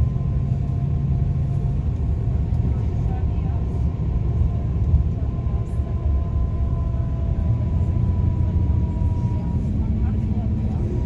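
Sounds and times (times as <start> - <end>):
vehicle engine and road noise: 0.0 - 11.0.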